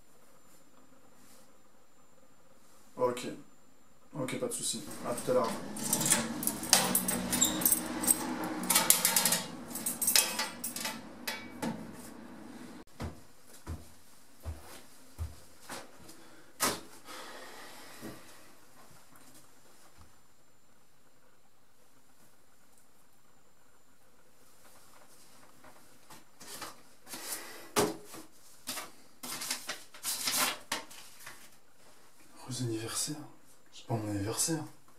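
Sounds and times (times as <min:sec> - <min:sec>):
small metal door opening: 0:05.0 - 0:11.9
keys jangling: 0:05.4 - 0:11.4
rustling handling noises: 0:28.0 - 0:32.2.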